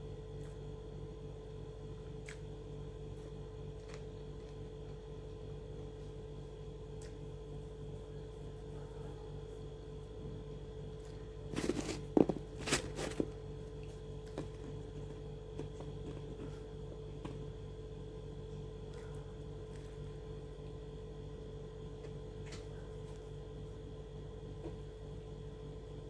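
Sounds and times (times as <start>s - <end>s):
low electrical hum: 0.0s - 26.0s
crackling rustling noises: 11.5s - 13.4s.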